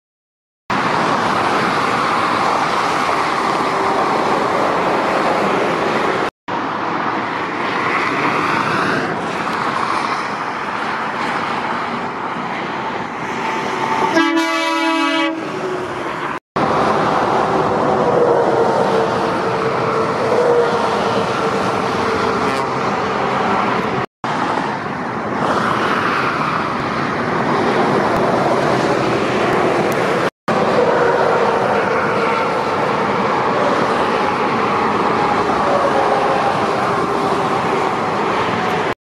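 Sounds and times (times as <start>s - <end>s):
lorries passing on motorway: 0.7s - 39.0s
air horn blast: 14.1s - 15.7s.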